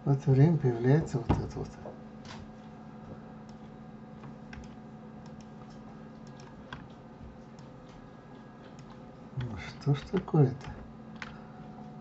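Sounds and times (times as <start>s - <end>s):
faint low hum: 0.0s - 12.0s
keyboard and mouse clicks: 3.4s - 11.4s.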